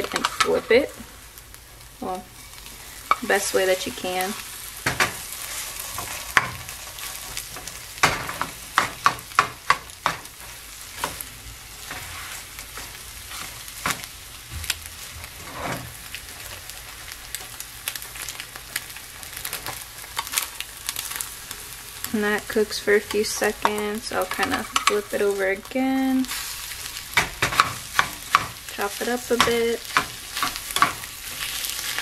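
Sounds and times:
spatula scraping pan: 0.0s - 1.0s, 2.4s - 14.2s, 14.9s - 16.5s, 22.3s - 32.0s
eggs sizzling in frying pan: 0.0s - 32.0s.

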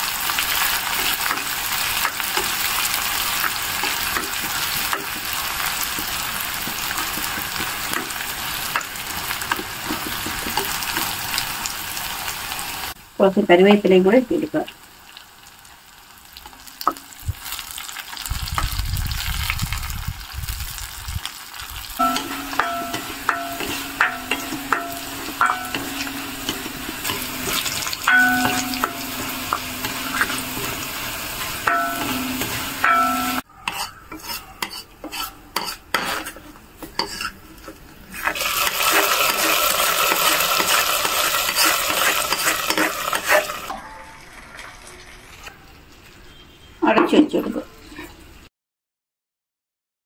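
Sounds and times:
food sizzling in hot oil: 0.0s - 45.5s
spoon clinking against pan: 22.0s - 30.8s, 31.6s - 36.1s.

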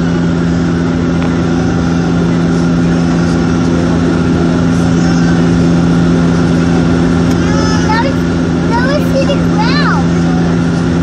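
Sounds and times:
airliner engines droning: 0.0s - 11.0s.

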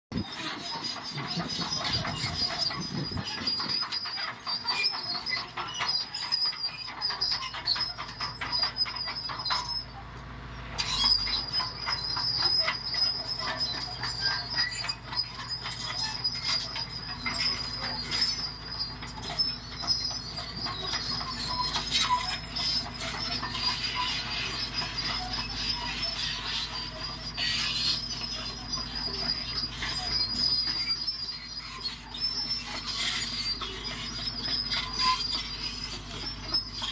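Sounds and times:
high steady squeal: 0.1s - 10.1s, 10.8s - 36.9s
steel tracks clanking and rattling: 0.1s - 36.9s.

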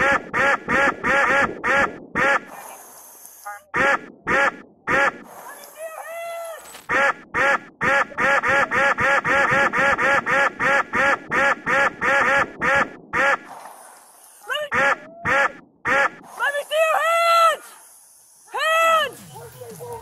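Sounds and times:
duck quack sound effects: 0.0s - 2.9s, 3.5s - 5.4s, 6.9s - 13.6s, 14.5s - 16.3s.

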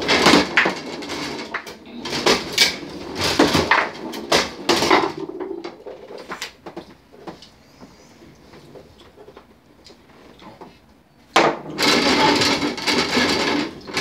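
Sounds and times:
foosball knocks and clacks: 0.0s - 7.4s, 11.3s - 14.0s.

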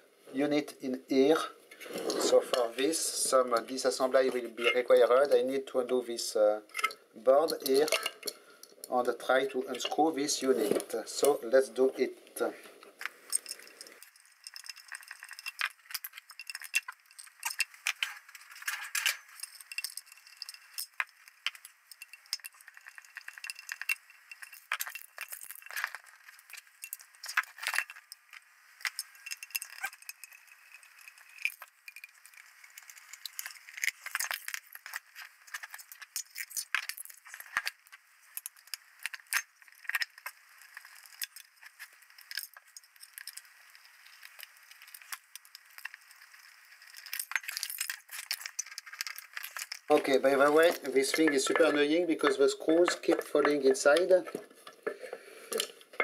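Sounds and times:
small metallic clinks and rattles: 6.7s - 8.9s, 13.0s - 51.9s.

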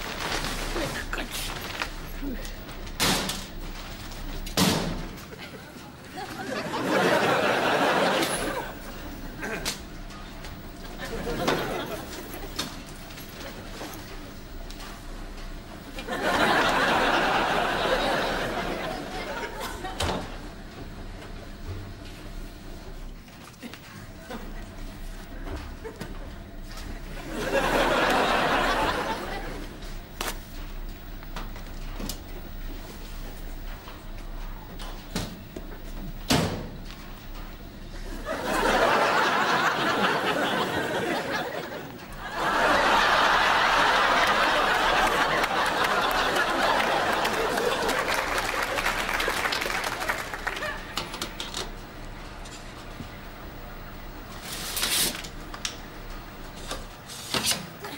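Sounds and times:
studio audience laughing: 5.2s - 9.9s, 10.8s - 12.8s, 15.8s - 20.5s, 25.3s - 30.0s, 38.0s - 51.3s.

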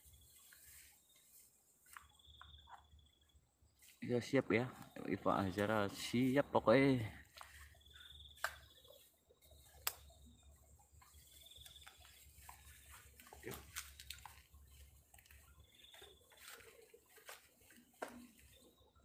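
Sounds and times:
faint high insect trill: 0.0s - 16.8s
soft clicks and crackles: 11.0s - 18.7s.

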